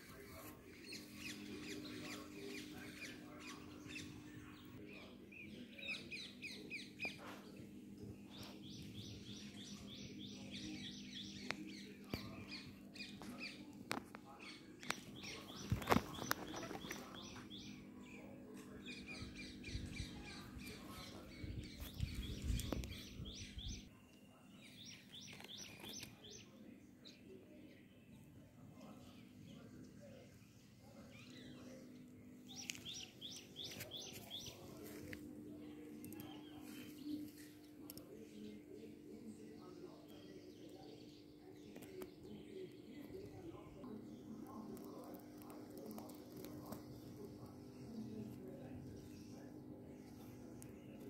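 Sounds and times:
small bird chirping: 0:08.3 - 0:29.6
steady low hum: 0:26.2 - 0:51.0.

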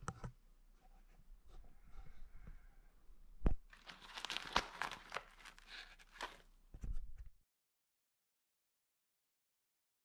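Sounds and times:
plastic and fabric crinkling: 0:03.7 - 0:06.5.

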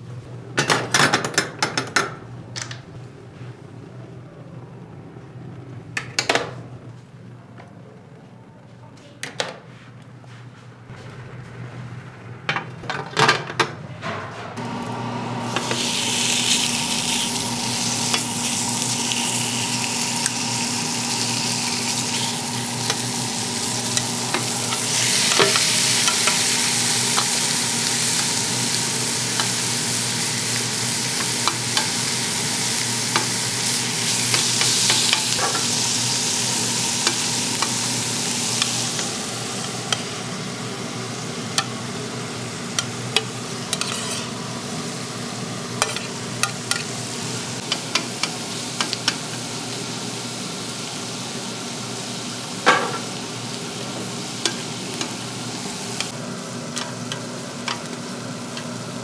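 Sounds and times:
steady low hum: 0:10.2 - 0:48.4
food sizzling in a pan: 0:14.6 - 0:59.0.

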